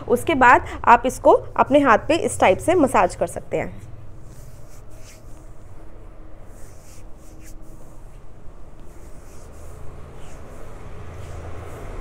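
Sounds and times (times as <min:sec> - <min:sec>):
low background hum: 0:00.0 - 0:12.0
hand rubbing oil into skin: 0:04.2 - 0:05.7, 0:06.4 - 0:12.0.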